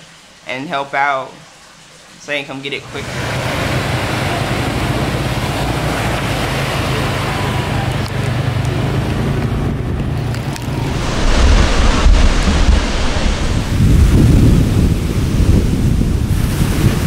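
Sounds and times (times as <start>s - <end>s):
ocean surf breaking: 2.8s - 17.0s
wind buffeting microphone: 9.7s - 17.0s.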